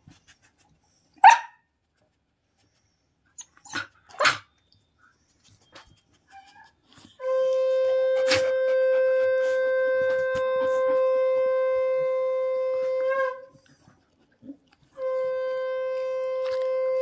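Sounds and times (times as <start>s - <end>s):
puppy barking: 1.2s - 1.6s, 3.7s - 4.5s
steady horn-like tone: 7.1s - 13.6s, 15.0s - 17.0s.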